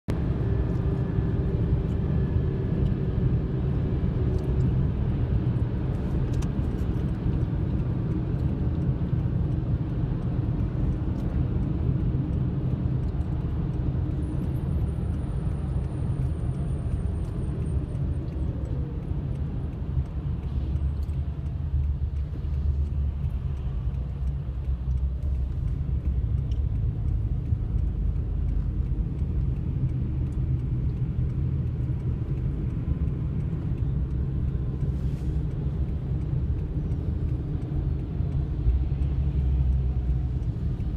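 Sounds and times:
car cabin road rumble: 0.1s - 40.9s.

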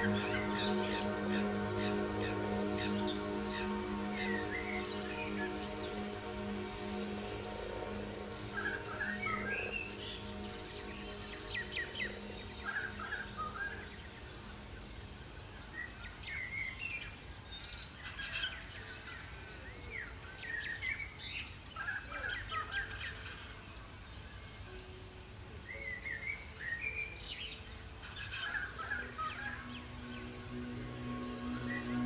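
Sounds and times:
birds chirping and calling: 0.0s - 16.8s, 25.7s - 32.0s
soft background music: 0.0s - 32.0s.

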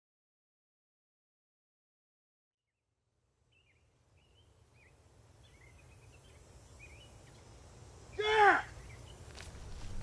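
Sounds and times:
faint bird chirps: 3.5s - 10.0s.

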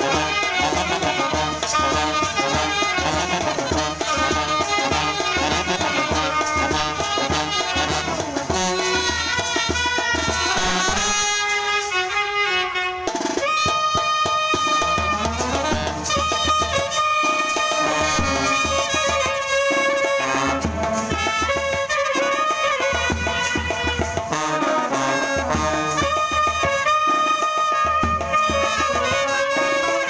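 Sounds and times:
brass band playing: 0.0s - 30.0s
bass drum beat: 14.7s - 16.9s, 17.8s - 19.4s.

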